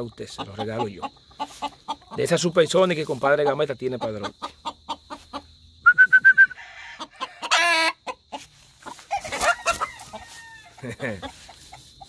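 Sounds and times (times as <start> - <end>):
rooster clucking: 0.0 - 12.0
rooster squawk-like call: 9.3 - 10.8.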